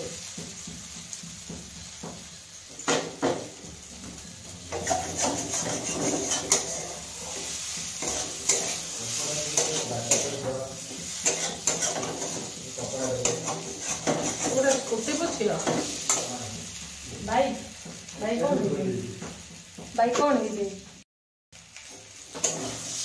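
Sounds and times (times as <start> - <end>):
light sizzle of frying: 0.0 - 23.0
spatula scraping metal pan: 1.8 - 16.9, 22.3 - 23.0.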